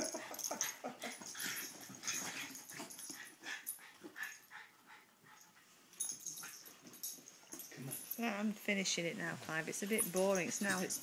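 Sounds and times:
small dogs play-fighting: 0.0s - 8.2s.

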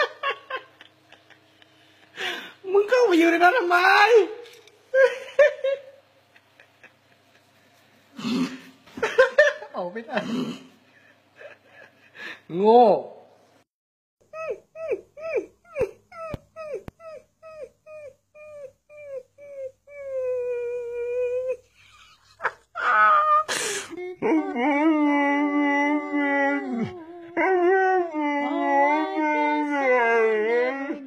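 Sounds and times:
dog howling: 24.1s - 31.0s.

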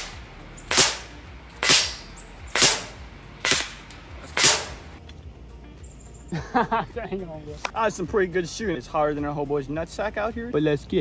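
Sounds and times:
airsoft pistol shots: 0.0s - 5.0s.

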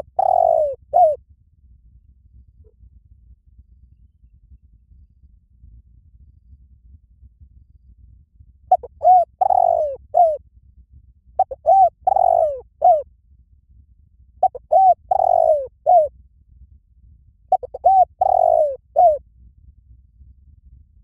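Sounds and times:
dove cooing: 0.0s - 1.2s, 8.7s - 10.4s, 11.4s - 13.0s, 14.4s - 16.1s, 17.5s - 19.2s.

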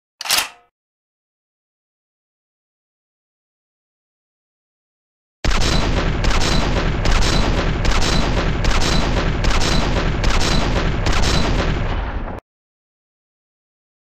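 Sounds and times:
heavy machine-gun fire: 5.4s - 12.4s.

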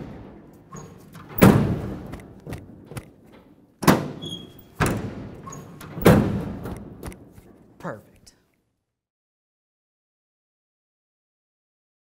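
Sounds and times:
tailgate slamming shut: 3.8s - 4.2s, 5.9s - 6.7s.

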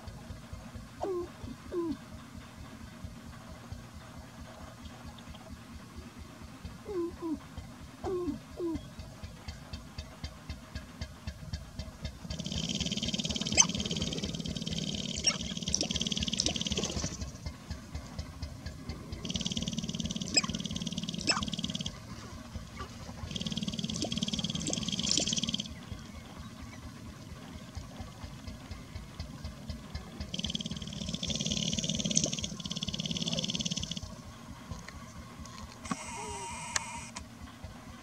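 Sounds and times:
grouse stamping feet rattling: 9.3s - 36.0s.

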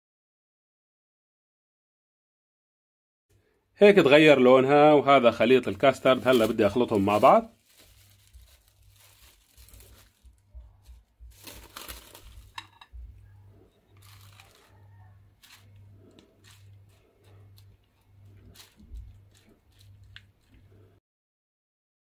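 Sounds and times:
cling film crinkling: 5.2s - 12.9s, 13.9s - 20.9s
low hum: 7.8s - 21.0s.

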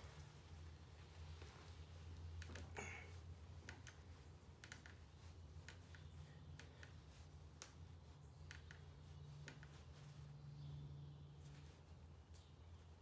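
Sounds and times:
low steady hum: 0.0s - 13.0s
faint small clicks: 3.6s - 10.0s, 12.3s - 12.6s.

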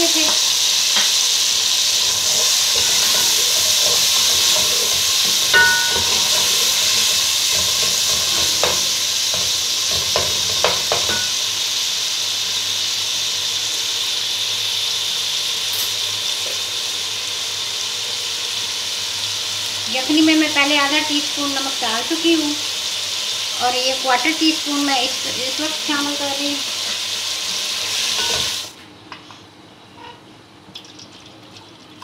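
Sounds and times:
tomatoes sizzling in oil: 0.0s - 28.8s
spatula scraping metal pot: 2.0s - 8.9s.

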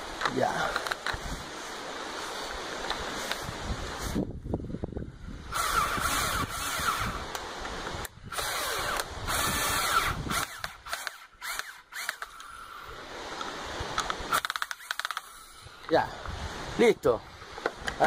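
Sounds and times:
power drill driving screw: 5.5s - 7.4s, 8.3s - 12.9s, 14.3s - 15.6s.

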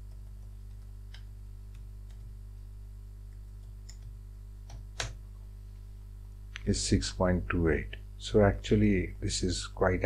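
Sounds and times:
low electrical hum: 0.0s - 10.0s
keyboard typing clicks: 3.3s - 5.2s.

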